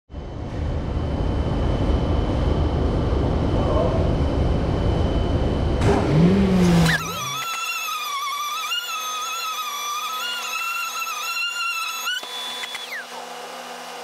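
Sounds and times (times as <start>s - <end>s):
orbital sander: 6.4s - 14.0s.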